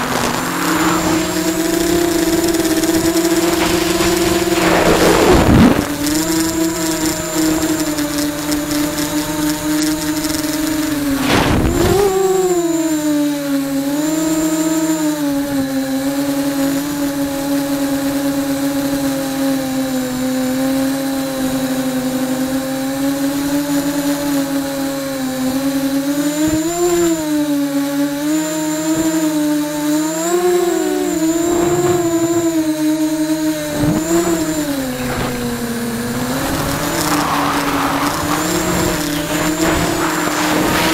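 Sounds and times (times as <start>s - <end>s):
steady high whine: 0.0s - 13.2s, 28.2s - 40.9s
drone motors buzzing: 0.0s - 40.9s.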